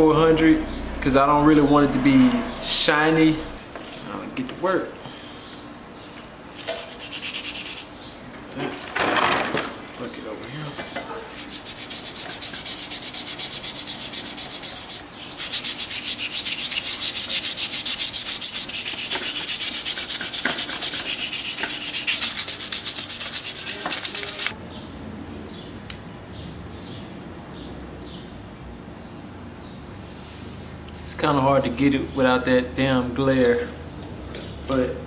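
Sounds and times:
sandpaper rubbing on metal: 6.6 - 7.9, 11.3 - 24.5.

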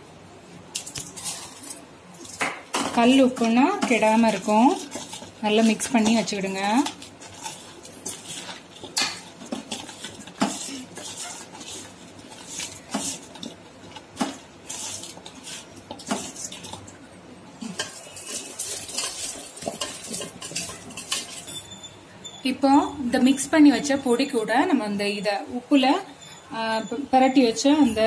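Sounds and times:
fruit pieces clinking in metal bowl: 0.8 - 16.9, 17.7 - 21.7.

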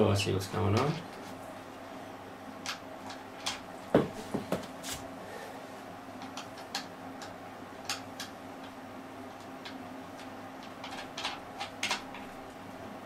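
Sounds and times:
knocks on wooden cabinet: 3.9 - 4.7.

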